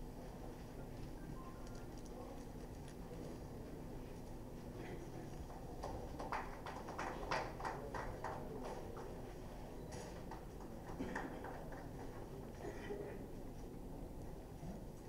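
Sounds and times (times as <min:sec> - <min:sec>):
low steady room hum: 0:00.0 - 0:15.0.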